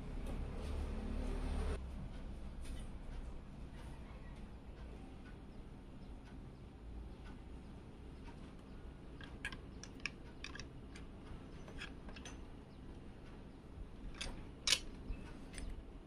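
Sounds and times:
metal brackets clicking and tapping: 8.2 - 16.0.

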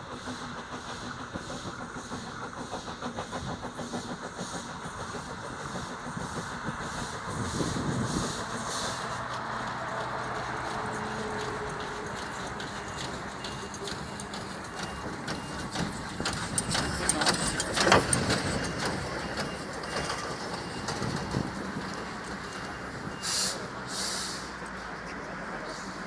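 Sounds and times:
steam locomotive rolling past: 0.0 - 26.0
short sharp steam hiss: 23.2 - 24.6.

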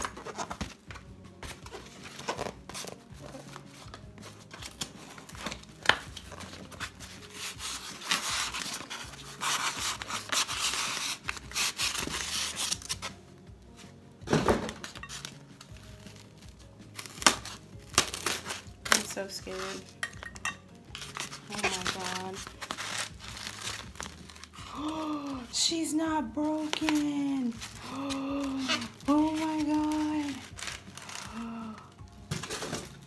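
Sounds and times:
knife slitting cardboard box: 6.4 - 13.0
styrofoam scraping out of box: 6.4 - 13.2, 21.0 - 24.6, 28.5 - 31.3.

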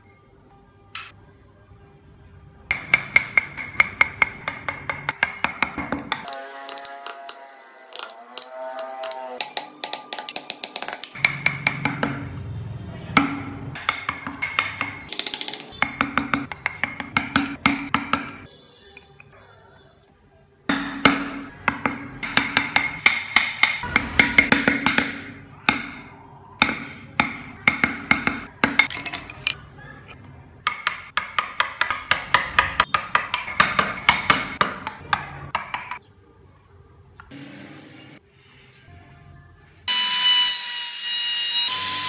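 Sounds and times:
chisel tapping into wood: 30.6 - 36.0.

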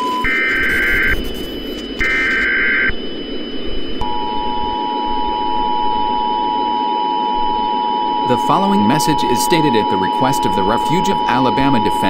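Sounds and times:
two-tone attention signal: 0.0 - 2.9, 4.0 - 12.0
static hiss: 0.0 - 4.0
harsh screeching data bursts: 0.0 - 12.0.

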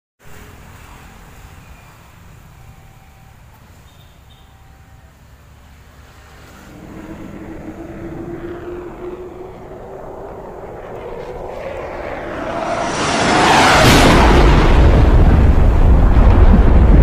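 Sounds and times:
fighter jet engines roaring: 6.0 - 17.0.

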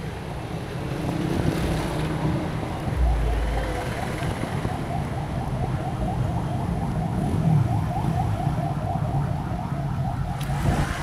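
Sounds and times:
traffic engines rumbling: 0.0 - 11.0
high warbling tone: 2.9 - 7.9.

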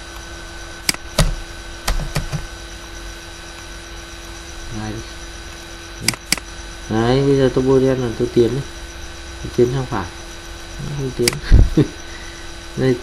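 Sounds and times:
electrical hum: 0.0 - 13.0
computer mouse clicks: 6.0 - 6.5.

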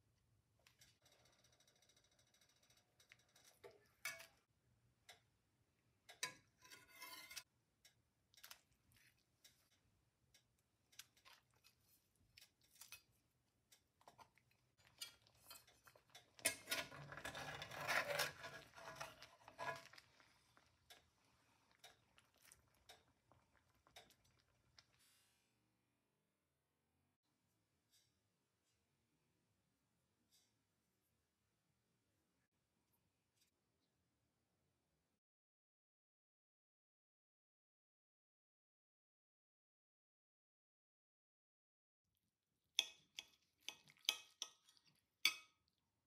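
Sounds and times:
utensils scraping a skillet: 3.0 - 4.4, 6.1 - 7.5, 10.9 - 13.2, 14.1 - 20.2.

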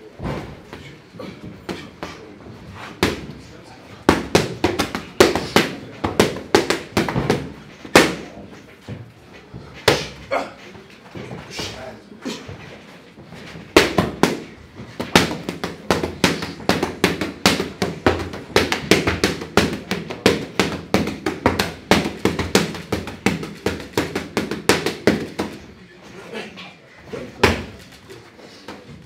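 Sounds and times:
boxing gloves punching pads: 1.4 - 3.4, 4.0 - 8.4, 9.7 - 10.3, 13.4 - 25.7, 27.4 - 27.8.

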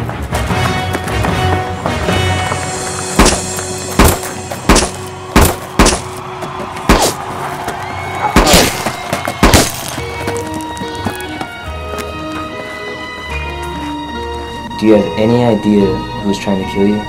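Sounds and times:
background music: 0.0 - 17.0
sharp sound-effect impacts: 2.6 - 7.2, 8.4 - 9.8.

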